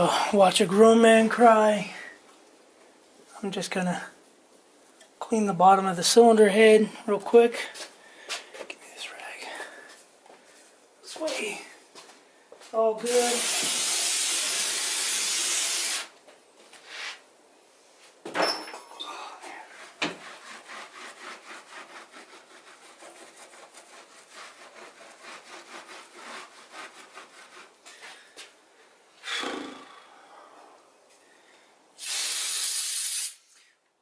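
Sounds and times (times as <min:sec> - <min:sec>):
spray hissing: 0:13.0 - 0:16.1, 0:32.0 - 0:33.6
rag wiping metal: 0:19.6 - 0:28.0.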